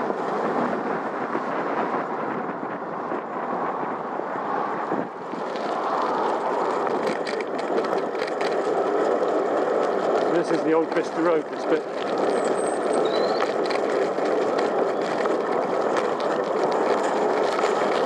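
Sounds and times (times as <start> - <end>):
bicycle wind and tyre rush: 0.0 - 18.0
light ticks and rattles: 5.4 - 18.0.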